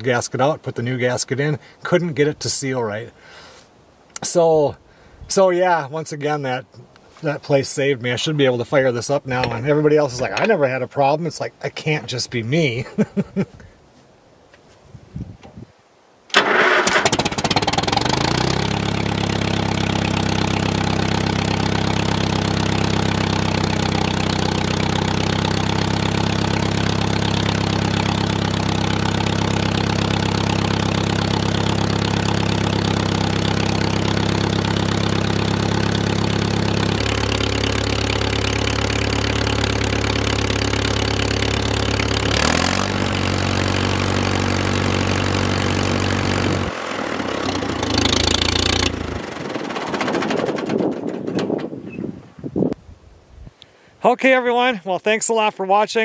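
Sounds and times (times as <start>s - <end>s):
tractor engine starting and idling: 9.4s - 10.6s, 16.3s - 52.0s.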